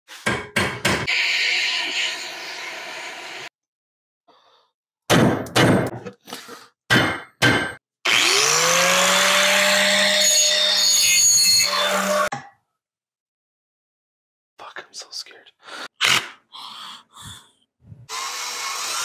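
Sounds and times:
small power tool whining: 8.1 - 12.3, 18.1 - 19.0.

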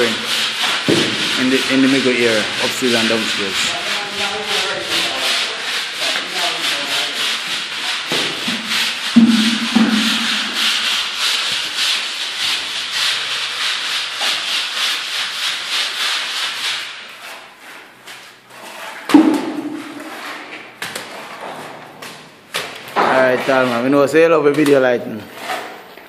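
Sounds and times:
plastering tool scraping wall: 0.0 - 25.8
brief low thud: 9.2 - 10.6.

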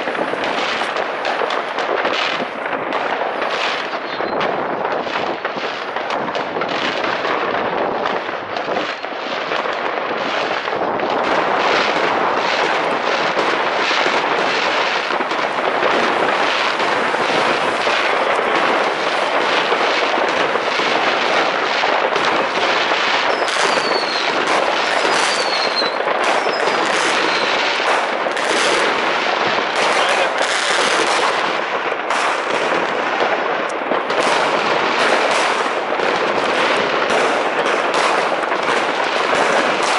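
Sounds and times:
fireworks bangs and crackles: 0.0 - 39.9
falling firework whistles: 3.8 - 4.5, 23.2 - 29.0.

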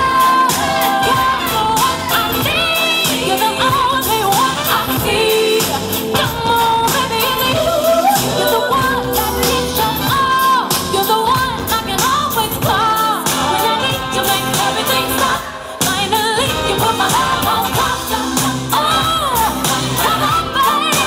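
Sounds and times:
backing track with drum beat: 0.0 - 21.0
woman singing: 0.0 - 21.0.

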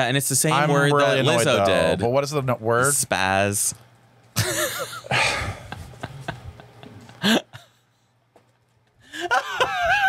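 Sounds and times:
man laughing breathily: 4.4 - 7.9, 9.0 - 10.0.

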